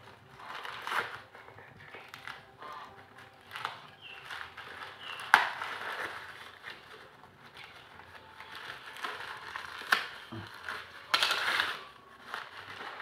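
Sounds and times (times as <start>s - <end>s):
packaging rustling and scraping: 0.0s - 13.0s.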